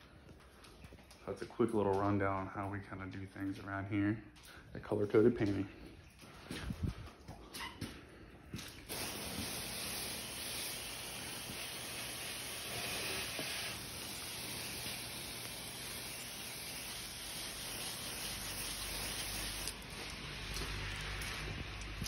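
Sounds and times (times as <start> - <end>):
sprayer hissing: 8.9 - 20.6.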